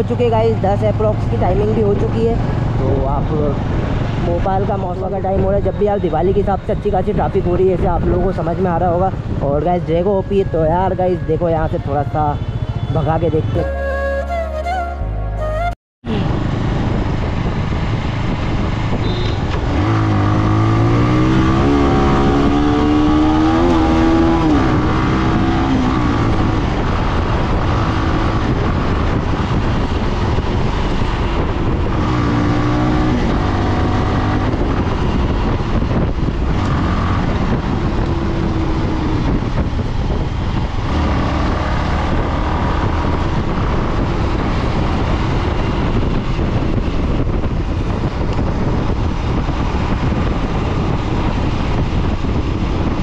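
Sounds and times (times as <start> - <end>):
wind and road noise: 0.0 - 53.0
motorcycle engine accelerating: 16.1 - 53.0.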